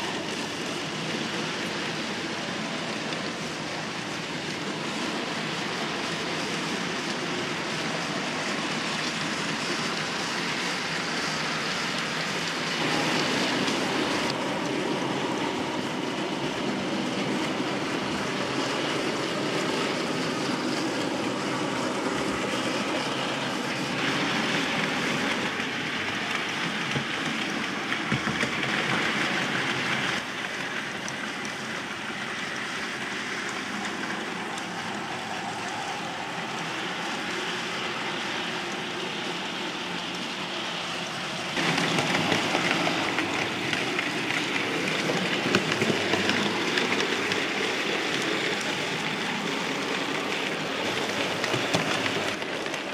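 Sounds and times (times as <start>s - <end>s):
model train wheels rumbling: 0.0s - 52.9s.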